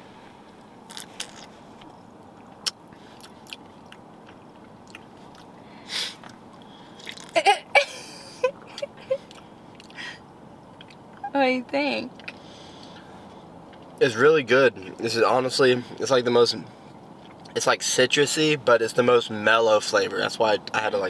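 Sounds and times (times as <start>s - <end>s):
lip smacks: 0.9s - 5.5s, 6.1s - 7.4s
breath: 12.3s - 13.5s.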